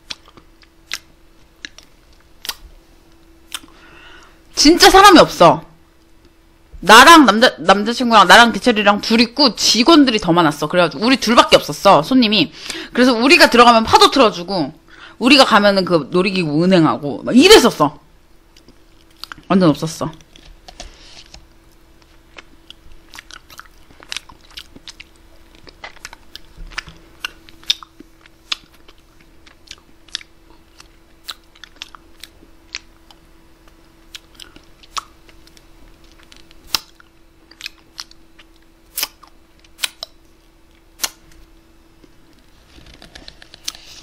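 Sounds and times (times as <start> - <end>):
lip smacks and wet clicks: 0.0 - 2.6, 3.5 - 3.8, 22.0 - 33.2, 34.1 - 40.2
steady low hum: 0.0 - 44.0.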